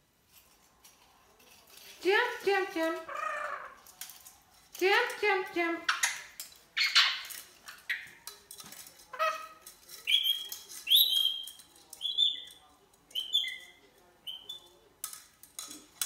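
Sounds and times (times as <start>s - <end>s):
toy clicking on tile floor: 0.3s - 5.2s, 5.9s - 16.0s
parrot screeching: 3.1s - 3.8s
high squeaky chirps: 9.2s - 14.7s.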